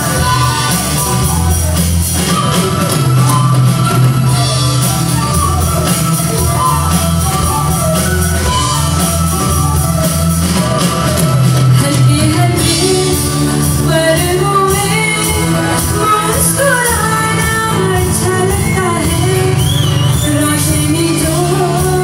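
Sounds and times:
woman singing: 0.0s - 1.6s, 10.8s - 22.0s
live band playing: 0.0s - 22.0s.

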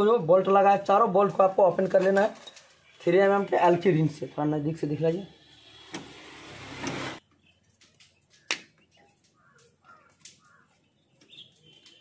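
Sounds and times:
faint bird chirps: 7.3s - 12.0s.

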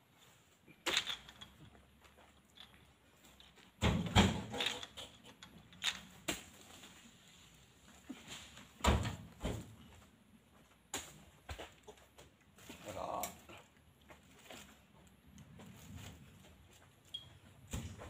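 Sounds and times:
fruit bunches thudding and knocking: 3.8s - 4.9s, 8.5s - 9.8s, 17.6s - 18.0s.

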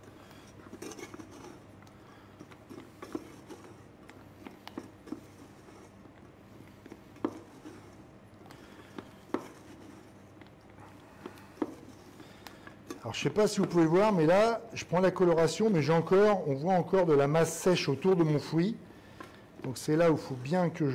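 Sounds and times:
spatula scraping saucepan: 0.0s - 1.7s, 2.6s - 4.0s, 4.8s - 6.0s, 6.8s - 10.4s.

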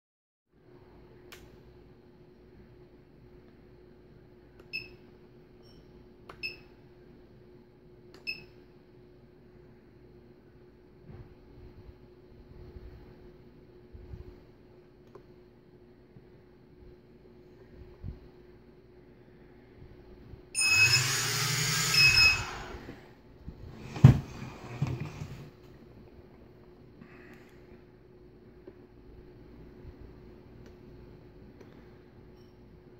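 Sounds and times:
faint steady hum: 0.5s - 32.9s
short high electronic beeps: 20.6s - 22.6s
drone motors whirring: 20.6s - 23.0s.

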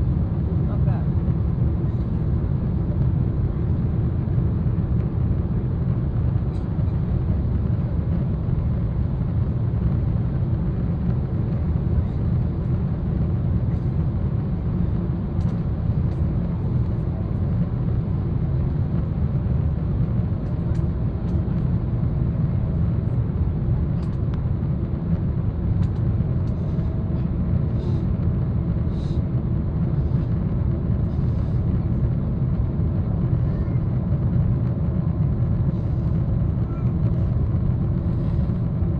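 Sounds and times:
airflow over fuselage: 0.0s - 38.9s
airplane cabin engine rumble: 0.0s - 38.9s.

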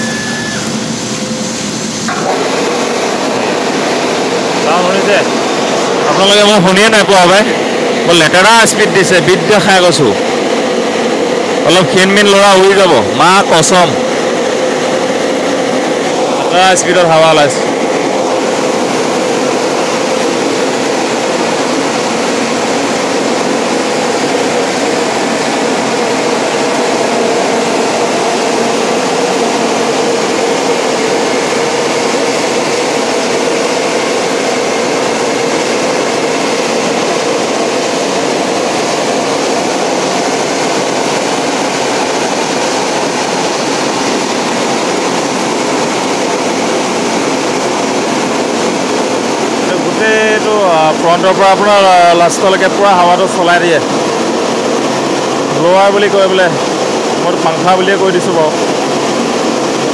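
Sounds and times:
car wash blowers rushing air: 0.0s - 59.9s.

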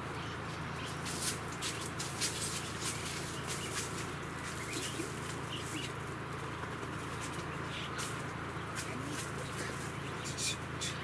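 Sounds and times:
faint bird chirps: 7.4s - 11.0s.

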